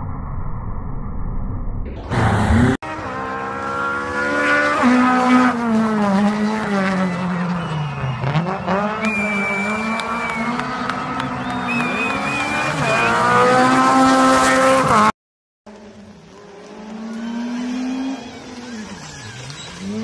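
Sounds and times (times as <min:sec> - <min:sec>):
low rumble: 0:00.0 - 0:02.8
car engine revving: 0:02.0 - 0:15.1, 0:15.7 - 0:20.0.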